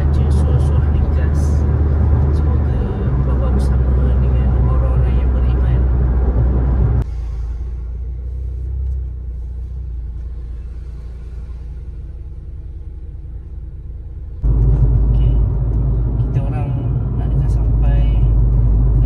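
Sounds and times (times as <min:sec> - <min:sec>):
car road rumble inside cabin: 0:00.0 - 0:19.0.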